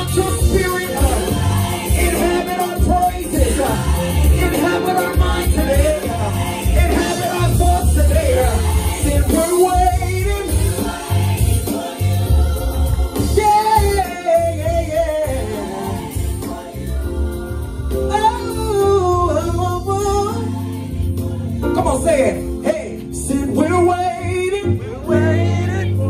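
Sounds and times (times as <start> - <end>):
man singing into microphone: 0.0 - 1.4, 2.0 - 10.8, 13.2 - 16.0, 18.1 - 20.4, 21.6 - 26.0
instrumental music with heavy bass: 0.0 - 26.0.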